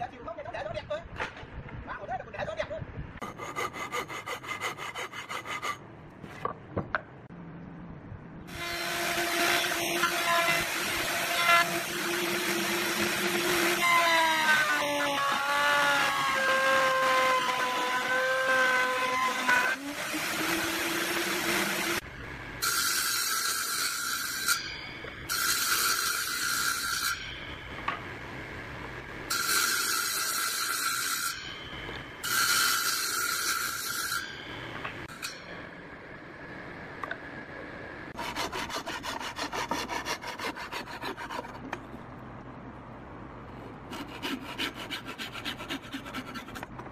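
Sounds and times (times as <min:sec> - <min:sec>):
wood being cut: 0:08.5 - 0:27.4, 0:38.1 - 0:41.7, 0:43.9 - 0:46.7.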